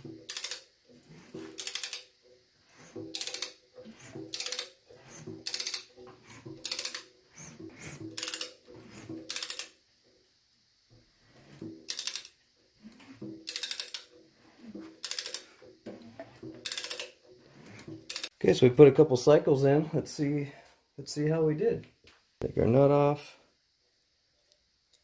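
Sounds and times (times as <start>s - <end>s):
ratchet clicking: 0.0s - 9.8s, 11.3s - 18.4s.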